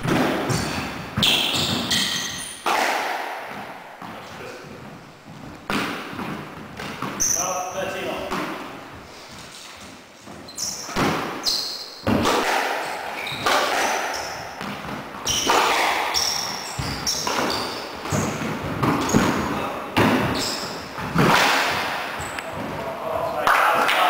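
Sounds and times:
squash ball hitting rackets and walls: 0:00.0 - 0:24.0
shoe squeaks on wooden floor: 0:00.5 - 0:02.7, 0:06.8 - 0:07.8, 0:09.2 - 0:21.4, 0:22.1 - 0:22.6.

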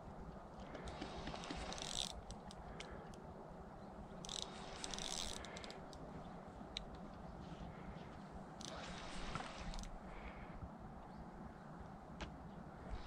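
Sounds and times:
fishing reel clicking and rattling: 0:00.8 - 0:02.9, 0:04.2 - 0:06.0, 0:09.5 - 0:10.0.

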